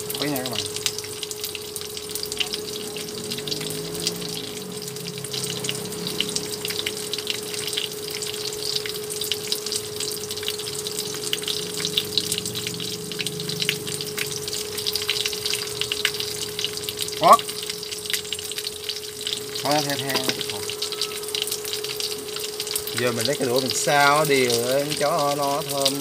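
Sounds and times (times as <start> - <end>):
food sizzling in hot oil: 0.0 - 26.0
steady hum: 0.0 - 26.0.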